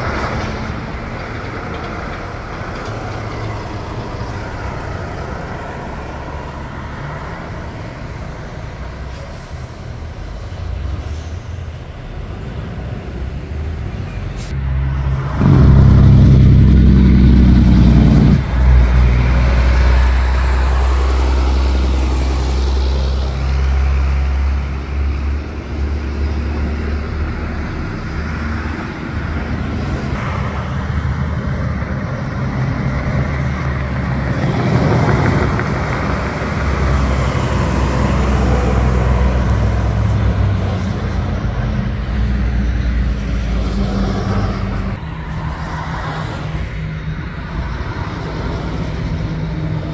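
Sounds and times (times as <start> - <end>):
truck engine passing: 0.0 - 49.9
low engine rumble: 9.3 - 24.8.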